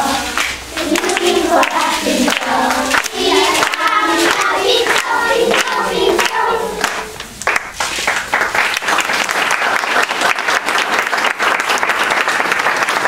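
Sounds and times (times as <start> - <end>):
children singing together: 0.0 - 7.3
people clapping: 0.0 - 13.0.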